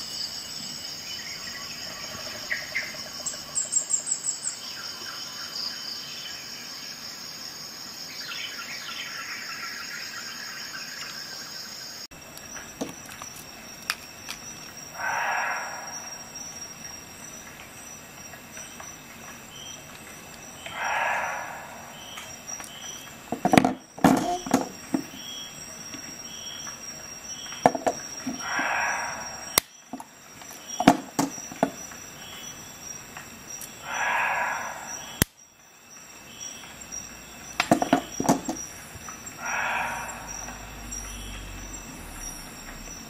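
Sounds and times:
soft rushing swells: 0:20.2 - 0:23.3, 0:38.7 - 0:43.0.

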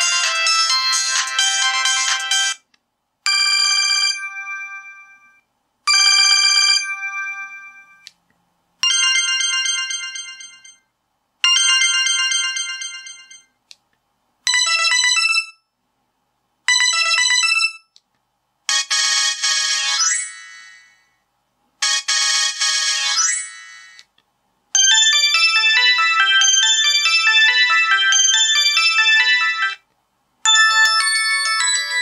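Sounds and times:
phone ringtone melodies: 0:00.0 - 0:02.6, 0:03.3 - 0:08.1, 0:08.8 - 0:10.8, 0:24.8 - 0:29.8, 0:30.4 - 0:32.0.

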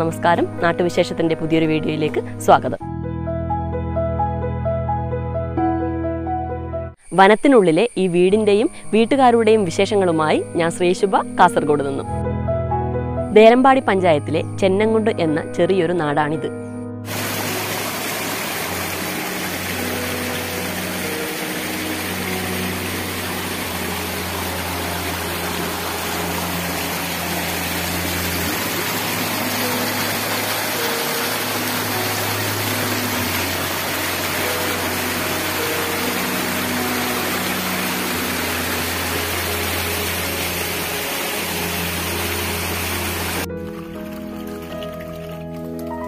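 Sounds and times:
slow music with low held notes: 0:00.0 - 0:07.0, 0:08.2 - 0:46.0
rushing water: 0:17.1 - 0:46.0.

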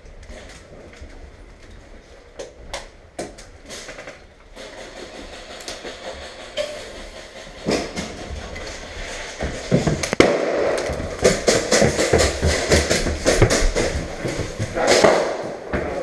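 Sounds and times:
sharp clicks and knocks: 0:02.4 - 0:16.0
footsteps on tile floor: 0:06.0 - 0:16.0.

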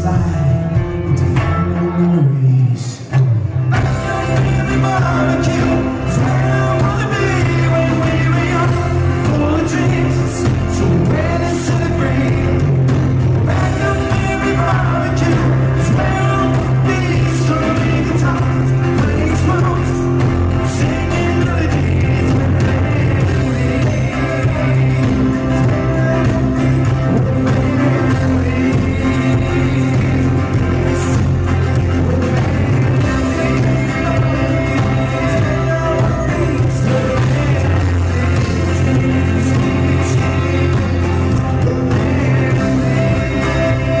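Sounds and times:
live rock band playing: 0:00.0 - 0:44.0
man singing: 0:00.0 - 0:44.0.

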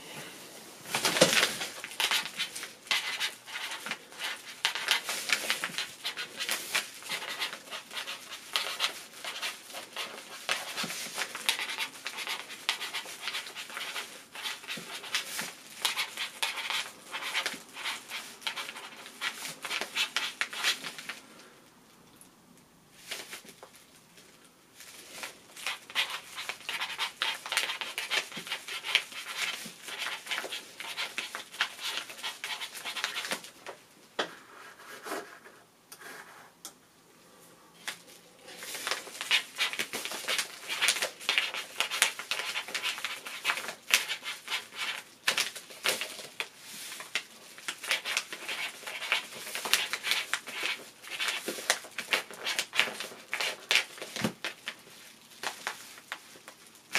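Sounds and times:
ballpoint pen scratching on paper: 0:01.2 - 0:20.8, 0:25.6 - 0:33.4, 0:38.8 - 0:45.1, 0:47.7 - 0:53.9.

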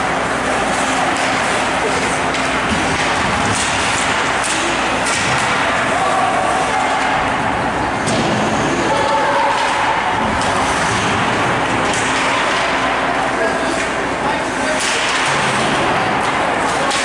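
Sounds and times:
ice rink din: 0:00.2 - 0:17.0
hockey stick hitting puck: 0:01.1 - 0:05.8, 0:09.0 - 0:13.0, 0:14.8 - 0:17.0.

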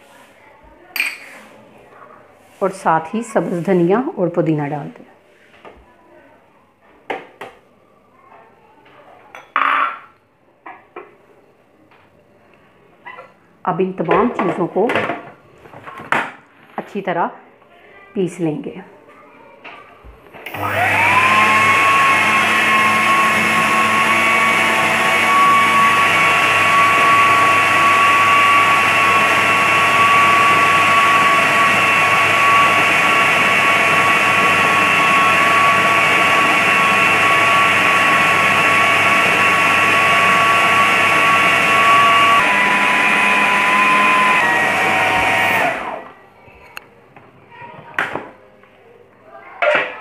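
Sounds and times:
food processor motor whining: 0:20.4 - 0:46.2.

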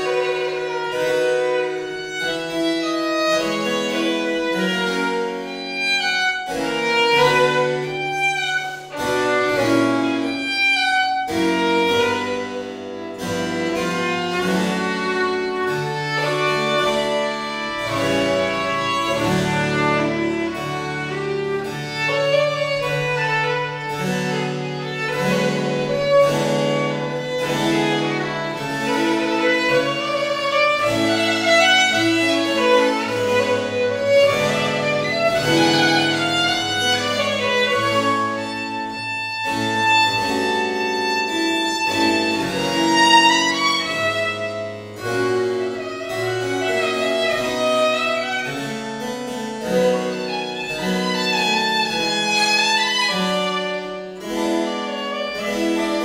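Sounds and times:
harpsichord: 0:00.0 - 0:56.0
violin playing slow melody: 0:00.0 - 0:56.0.

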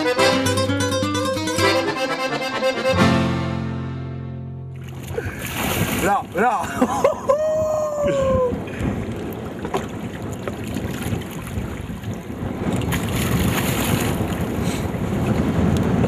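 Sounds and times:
choppy river water: 0:04.7 - 0:16.0
fish splashing at surface: 0:04.8 - 0:06.2
wind buffeting microphone: 0:04.8 - 0:16.0.

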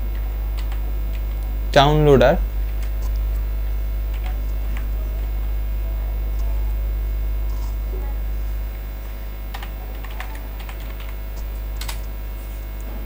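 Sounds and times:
low electrical mains hum: 0:00.0 - 0:13.0
computer keyboard keystrokes: 0:00.6 - 0:01.2, 0:09.5 - 0:11.2, 0:11.8 - 0:12.1.

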